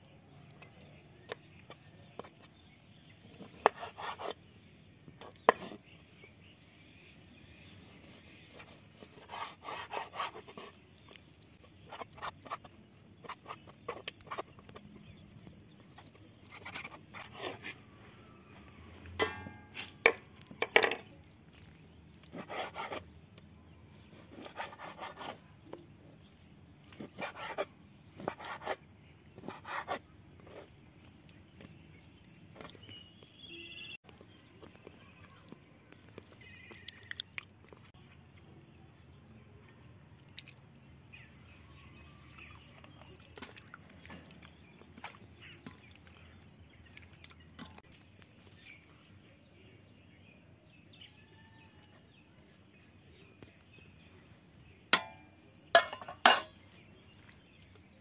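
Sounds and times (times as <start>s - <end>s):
faint bird chirps: 31.6s - 43.8s, 44.4s - 58.0s.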